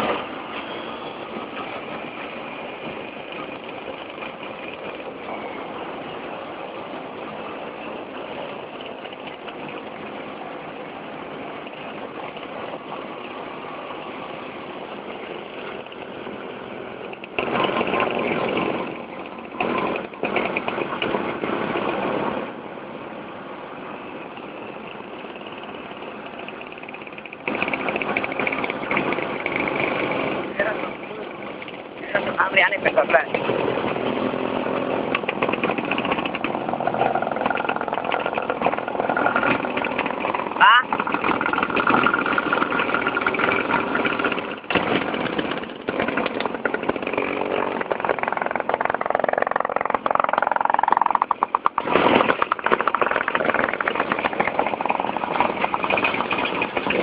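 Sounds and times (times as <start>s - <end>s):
two-stroke scooters running: 0.0s - 22.6s, 23.5s - 57.0s.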